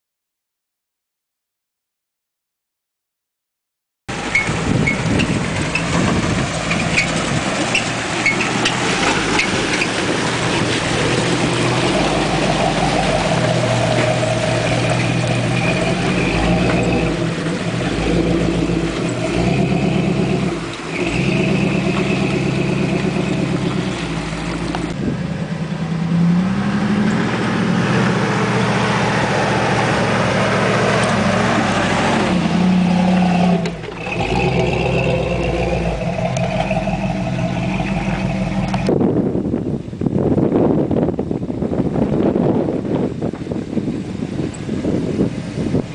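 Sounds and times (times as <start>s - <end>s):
engine idling and revving: 4.1s - 45.9s
high squeak of loose bumper: 4.2s - 10.0s.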